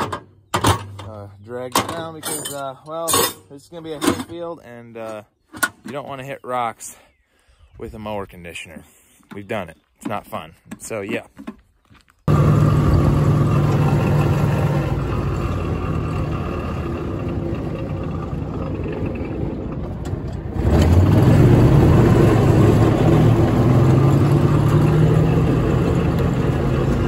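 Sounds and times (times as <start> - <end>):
utility vehicle engine running: 12.3 - 27.0.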